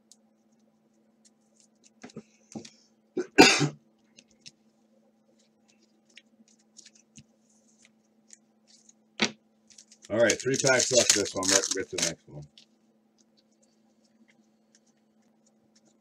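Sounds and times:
low steady hum: 0.0s - 16.0s
man coughing: 3.2s - 3.8s
trading cards rustling: 9.6s - 12.7s.

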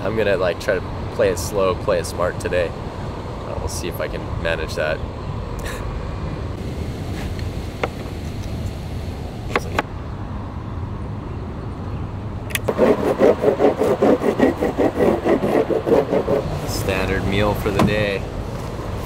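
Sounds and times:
wax rubbed on surfboard: 12.7s - 16.5s.

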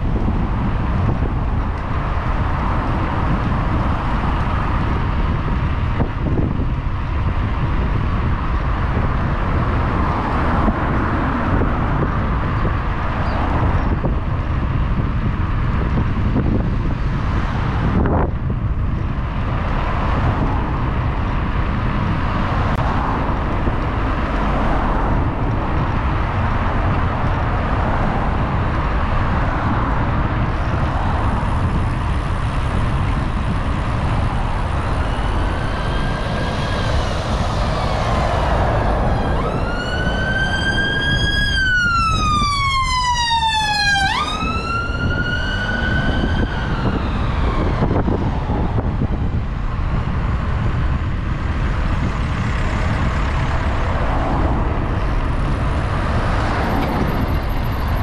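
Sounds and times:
wind rush and road noise: 0.0s - 58.0s
siren wailing: 34.2s - 48.8s.

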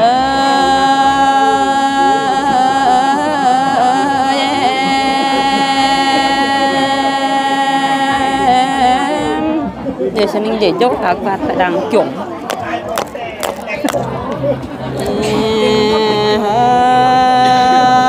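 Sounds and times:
woman singing a long note: 0.0s - 9.8s, 15.0s - 18.0s.

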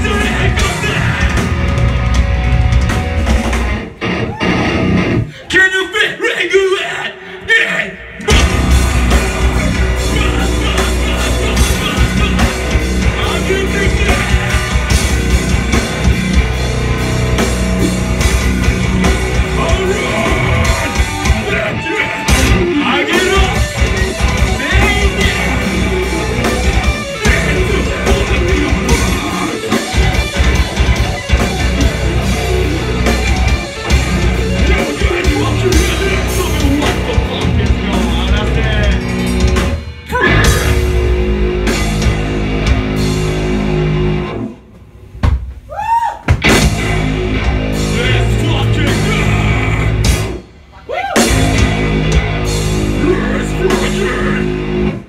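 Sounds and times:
vocalist singing and yelling: 0.0s - 1.8s, 5.3s - 16.2s, 19.0s - 32.2s, 32.8s - 39.3s, 40.0s - 41.0s, 47.4s - 55.0s
metal band playing: 0.0s - 6.9s, 7.5s - 45.2s, 46.4s - 55.0s.

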